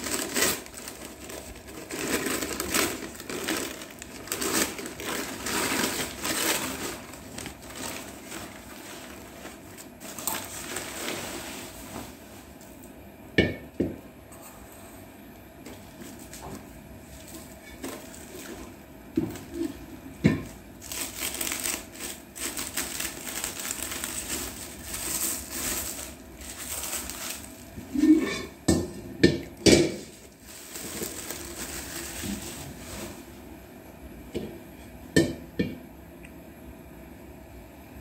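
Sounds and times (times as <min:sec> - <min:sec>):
plastic film crinkling: 0:00.0 - 0:12.6, 0:15.8 - 0:19.8, 0:20.4 - 0:28.1, 0:30.0 - 0:33.4.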